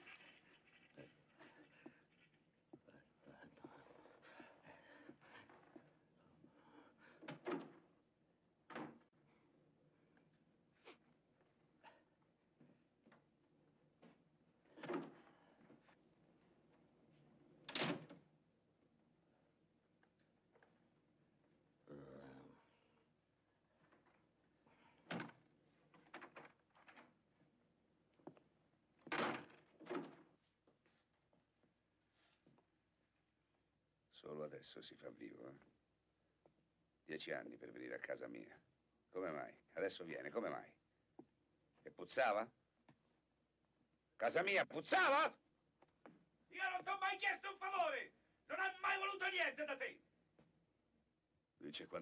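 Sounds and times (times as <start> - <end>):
door opening and closing: 14.7 - 15.5, 17.6 - 18.3, 29.0 - 30.3.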